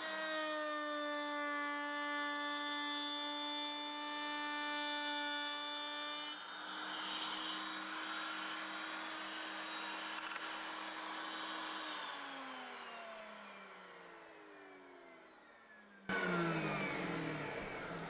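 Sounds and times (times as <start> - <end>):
router whining and winding down: 0.0 - 18.0
loud whir: 4.1 - 18.0.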